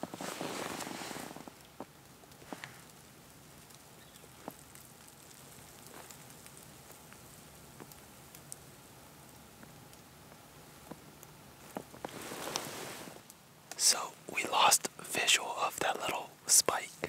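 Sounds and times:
small ticks and clicks: 1.4s - 14.0s.

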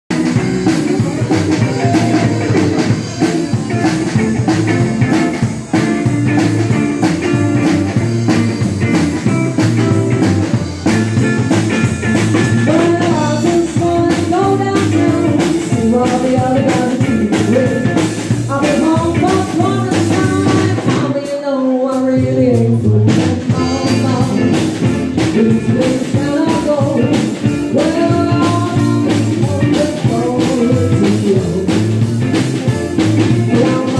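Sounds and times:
live rock and roll band: 0.1s - 33.9s
woman singing: 12.6s - 32.0s, 33.2s - 33.9s.

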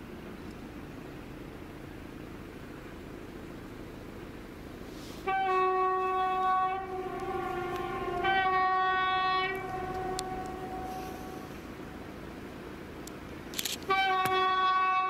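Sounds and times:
diesel locomotive horn blasts: 5.1s - 12.1s, 13.8s - 15.0s.

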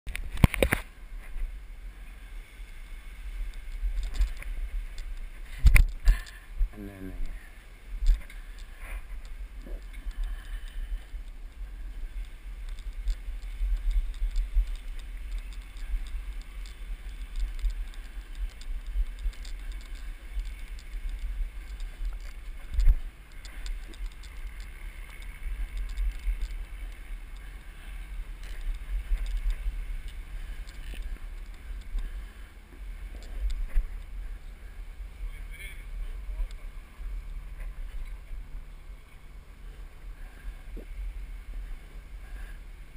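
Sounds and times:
wind buffeting microphone: 3.2s - 39.2s
light clicks: 12.1s - 32.4s.

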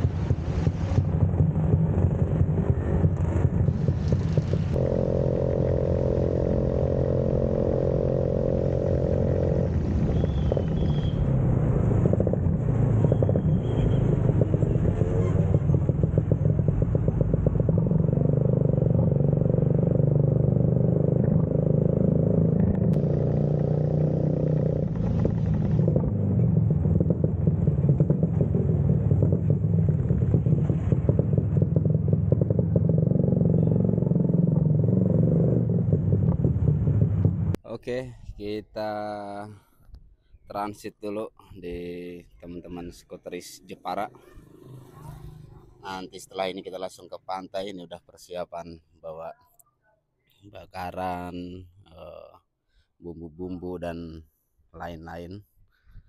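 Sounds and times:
scooter engine running: 3.3s - 11.1s, 14.1s - 35.1s.

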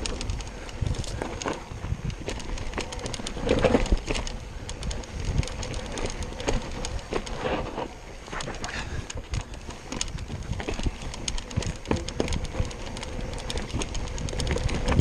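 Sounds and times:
bike clattering over bumps: 0.0s - 15.0s
tyres crunching over dirt: 0.0s - 15.0s.

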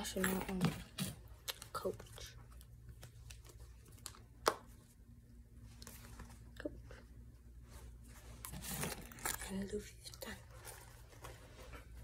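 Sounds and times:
light rustling and handling: 7.6s - 12.0s.

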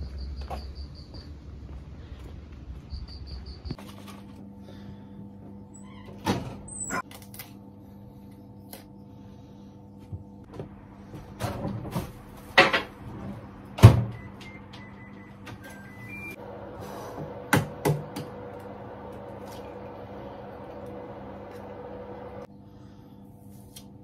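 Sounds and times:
steady low hum: 0.0s - 24.0s
electronic keypad beeps: 14.1s - 16.4s.

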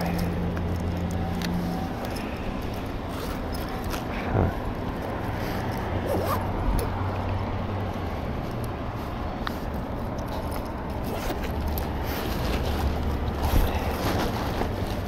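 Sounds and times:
shopping cart rolling on asphalt: 8.1s - 15.0s
cart basket rattling: 9.6s - 15.0s.

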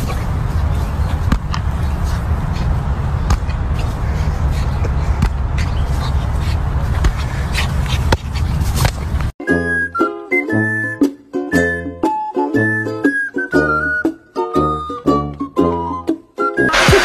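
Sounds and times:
beach ball bouncing on ground: 1.1s - 1.8s, 3.2s - 3.6s, 6.9s - 7.2s.

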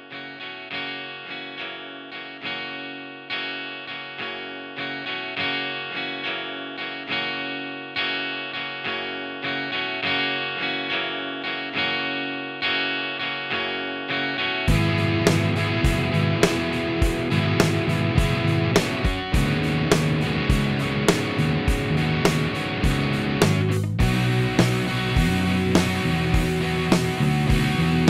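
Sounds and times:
plucked string notes: 12.8s - 28.0s.

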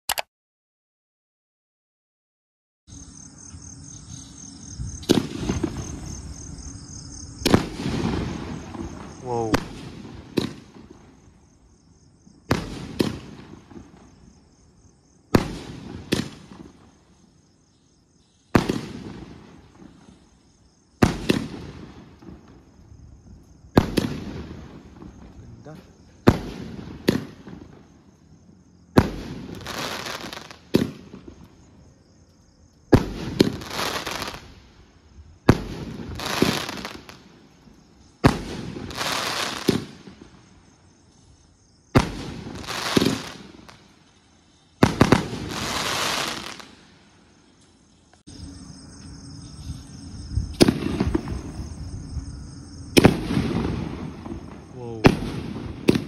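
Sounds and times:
firework shells firing: 7.4s - 11.2s, 12.5s - 14.1s, 15.3s - 16.9s, 21.0s - 22.7s, 26.2s - 27.8s, 28.9s - 31.5s, 32.9s - 34.8s, 38.2s - 40.4s, 41.9s - 44.0s, 44.8s - 46.9s, 53.0s - 56.0s
crackling hiss of breaking shells: 32.2s - 40.5s, 42.0s - 48.3s.

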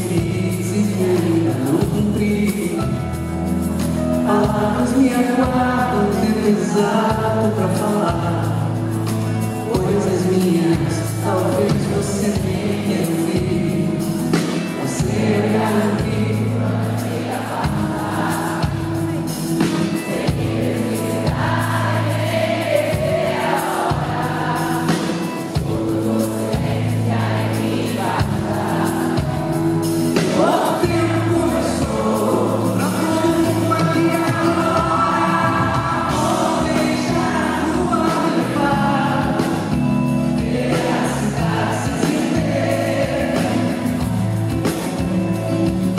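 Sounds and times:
band accompaniment: 0.0s - 45.9s
nylon-string guitar: 0.0s - 45.9s
crowd singing along: 9.8s - 45.9s.

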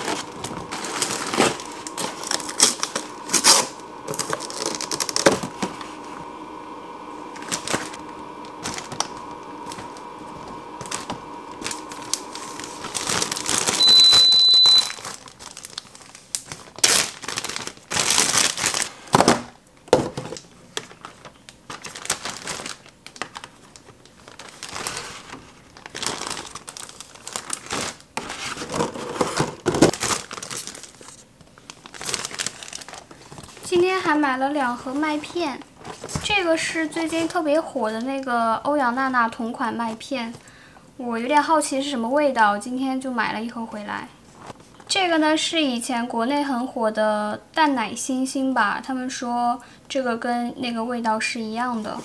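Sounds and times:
plastic containers rustling and clicking: 0.0s - 6.0s, 7.3s - 34.0s, 34.6s - 38.4s
plastic bags crinkling: 0.0s - 38.4s
high beep: 13.8s - 15.0s.

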